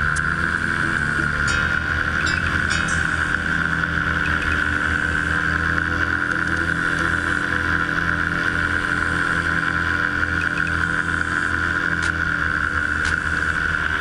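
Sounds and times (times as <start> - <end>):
microlight engine and propeller drone: 0.0 - 14.0.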